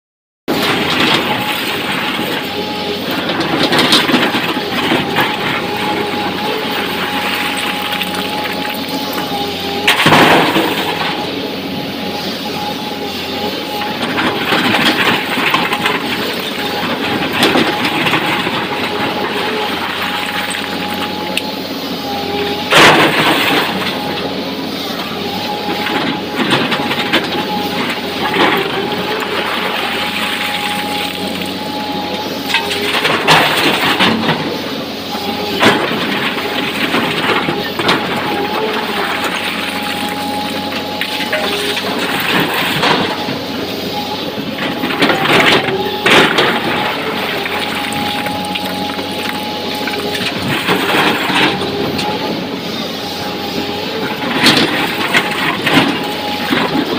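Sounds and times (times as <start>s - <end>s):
excavator engine whining: 0.5s - 56.9s
rocks crunching against bucket: 44.7s - 52.2s.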